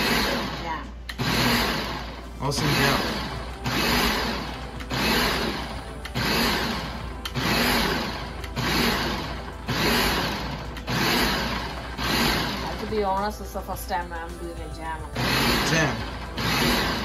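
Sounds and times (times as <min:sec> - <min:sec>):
food processor motor pulsing: 0:00.0 - 0:13.6, 0:15.0 - 0:17.0.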